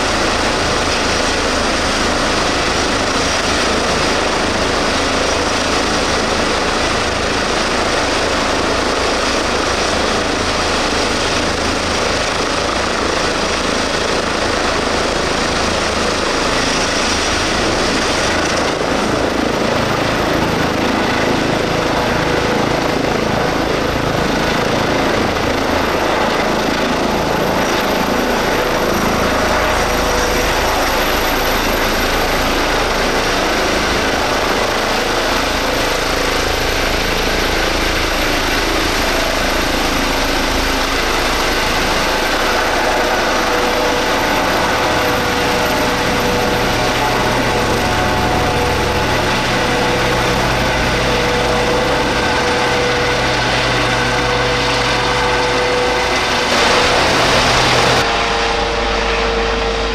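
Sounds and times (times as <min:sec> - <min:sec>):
helicopter turbine whine and rotor: 0:00.0 - 0:59.9.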